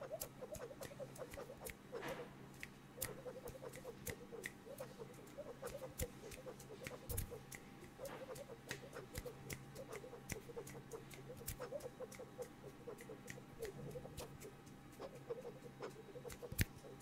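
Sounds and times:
sharp mouth clicks: 0.0s - 17.0s
squeaky chirps through lips: 3.0s - 17.0s.

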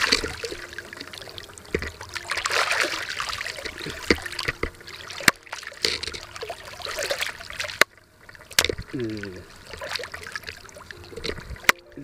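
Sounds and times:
eel thrashing in water: 0.0s - 11.7s
shallow water splashing: 0.0s - 12.0s.

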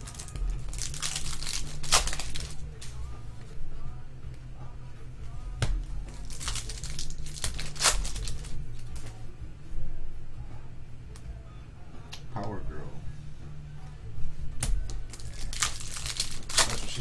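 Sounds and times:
foil wrapper crinkling: 0.0s - 2.6s, 6.2s - 8.6s, 15.1s - 17.0s
cards rustling: 0.0s - 2.9s, 6.1s - 9.1s, 14.8s - 17.0s.

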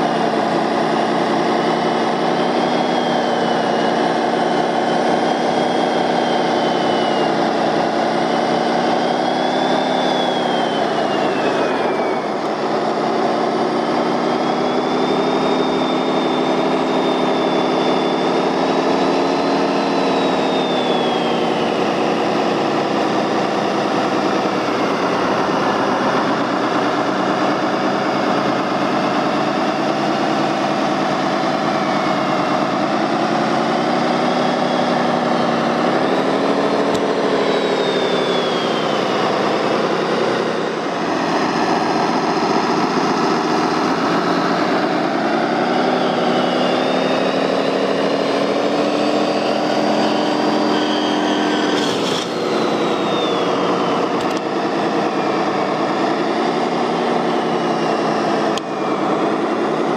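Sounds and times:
toy truck motor hum and whine: 0.0s - 59.9s.

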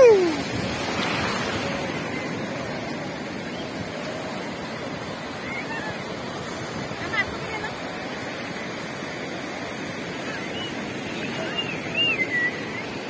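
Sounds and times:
sea surf washing up beach: 0.0s - 13.0s.

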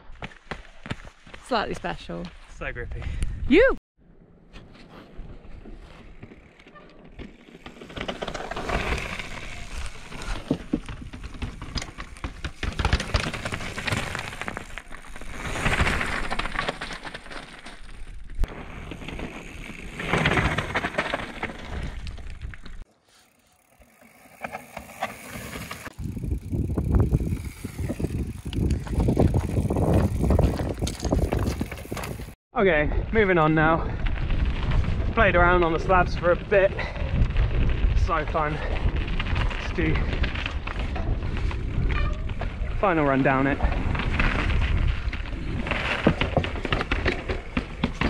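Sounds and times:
bike tyres on rock: 5.1s - 32.4s, 33.1s - 48.0s
bike clattering over bumps: 6.0s - 22.8s, 23.6s - 32.4s, 43.6s - 48.0s.

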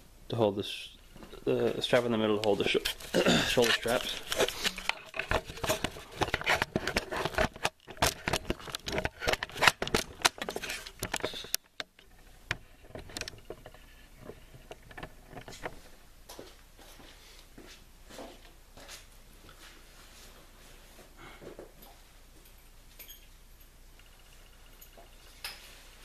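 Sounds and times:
camera handling clicks and knocks: 4.3s - 13.4s.

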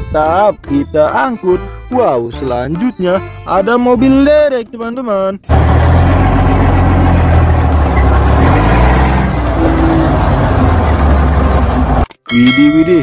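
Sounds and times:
diesel truck engine running hard: 5.5s - 12.1s.

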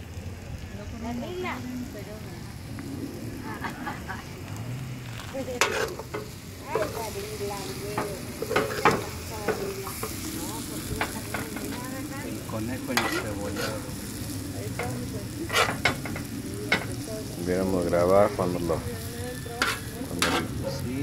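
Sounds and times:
meat and onions sizzling: 0.0s - 21.0s
metal spoon scraping a pan: 5.5s - 11.8s, 12.8s - 14.1s, 14.7s - 17.0s, 19.1s - 21.0s.

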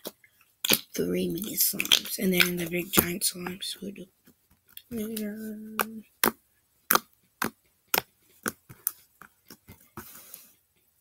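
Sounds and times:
held vocal tone: 4.8s - 6.2s.

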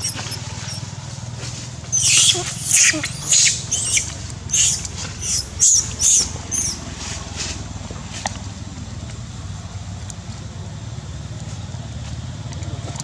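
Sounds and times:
baby monkey screaming: 0.0s - 0.9s, 1.9s - 6.9s.

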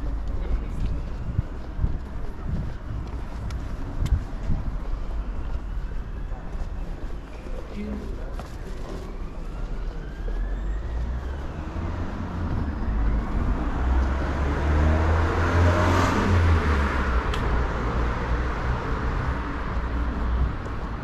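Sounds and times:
low traffic rumble: 0.0s - 21.0s
vehicle passing by: 10.0s - 21.0s.

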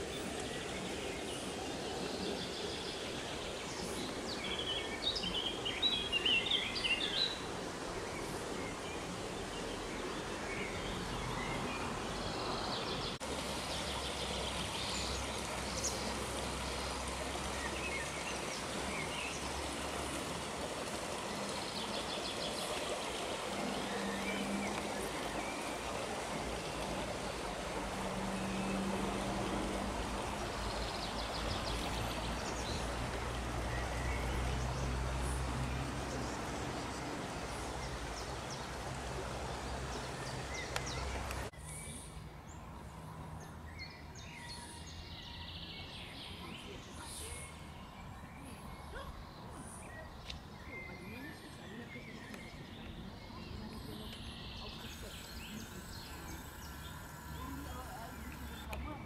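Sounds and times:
songbirds chirping: 0.0s - 59.0s
steady rushing hiss: 54.6s - 58.8s.

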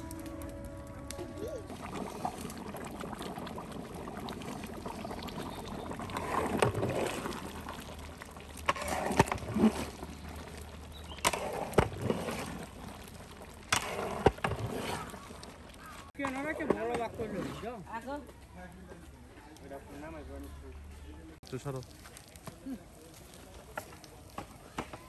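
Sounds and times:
paddle stirring food in pot: 1.7s - 17.9s.

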